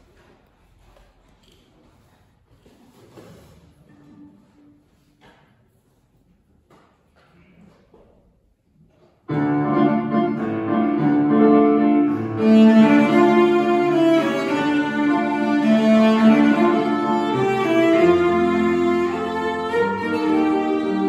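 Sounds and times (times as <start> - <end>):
bowed cello melody: 9.3 - 21.0
piano accompaniment: 9.3 - 21.0.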